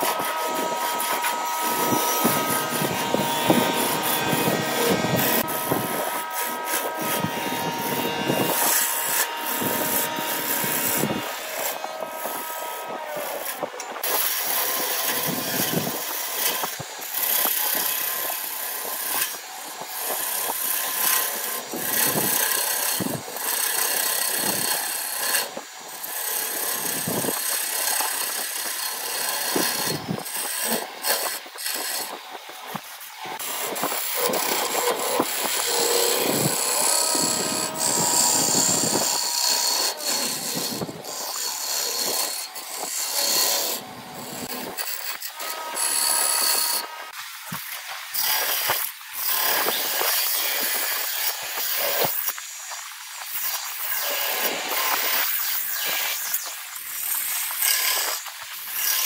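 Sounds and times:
chisel scraping wood on lathe: 0.0 - 52.6, 53.3 - 56.4, 57.1 - 59.0.

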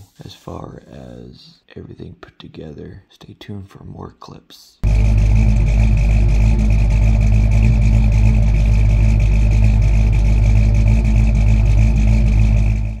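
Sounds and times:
engine idling: 4.8 - 13.0.

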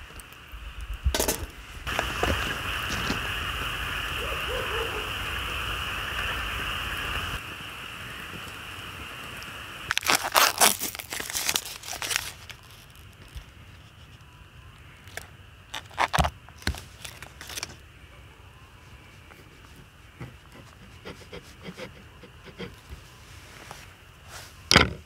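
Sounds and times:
wood stove hissing: 0.0 - 25.0
plastic packaging crinkling: 9.9 - 13.6, 15.1 - 17.8.

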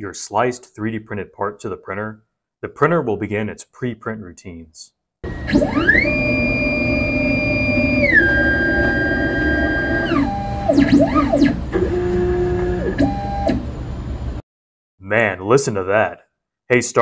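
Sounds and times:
stepper motors whining: 5.2 - 13.7.

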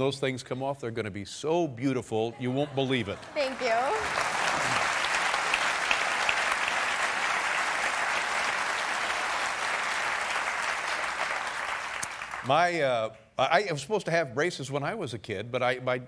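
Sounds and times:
audience applauding: 2.9 - 12.7.

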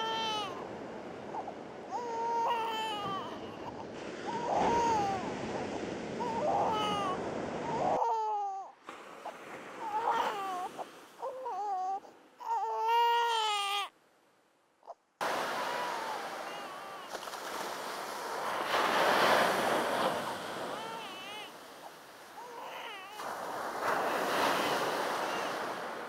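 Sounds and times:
infant crying: 0.0 - 0.6, 1.3 - 5.3, 6.2 - 8.7, 9.8 - 13.9, 15.6 - 17.1, 20.7 - 21.5, 22.4 - 23.2
surf washing: 0.0 - 11.8, 15.2 - 26.0.

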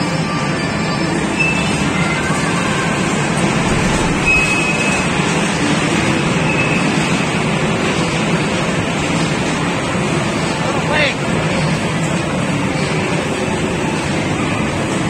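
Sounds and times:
high squeal: 0.0 - 7.3
ride train rumbling on track: 0.0 - 15.0.

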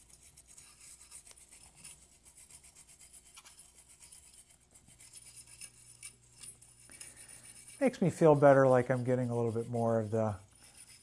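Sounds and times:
bore brush scraping inside barrel: 6.6 - 11.0.

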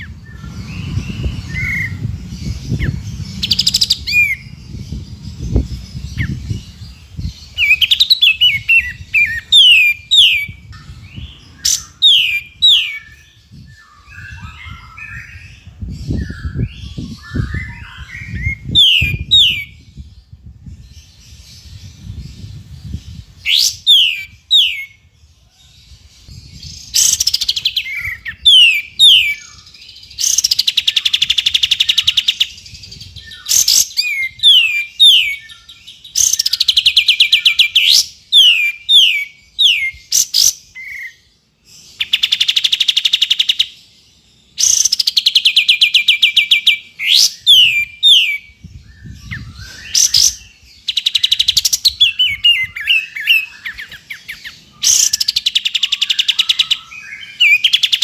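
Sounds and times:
bird buzzy trills: 0.0 - 15.4.

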